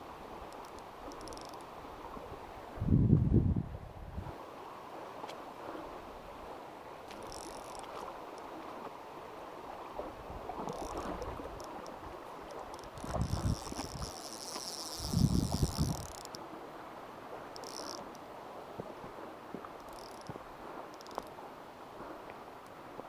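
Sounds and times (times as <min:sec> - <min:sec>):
stream water running: 0:00.0 - 0:23.0
insects chirping in trills: 0:12.5 - 0:16.4, 0:17.6 - 0:18.2, 0:19.8 - 0:20.3.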